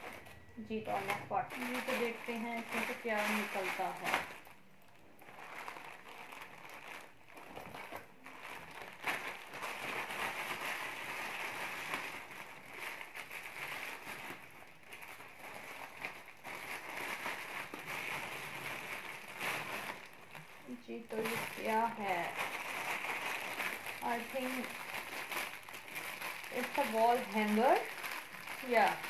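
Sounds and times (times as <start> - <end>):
plastic bags crinkling: 0.0 - 29.0.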